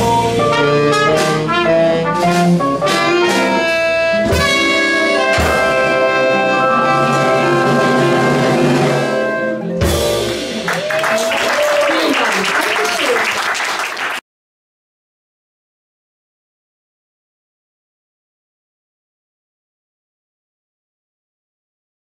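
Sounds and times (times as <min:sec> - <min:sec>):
swing jazz band playing: 0:00.0 - 0:11.2.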